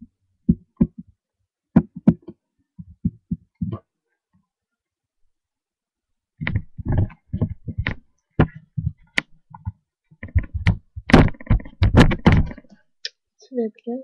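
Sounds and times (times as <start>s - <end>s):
handling knocks on microphone: 6.4s - 12.7s.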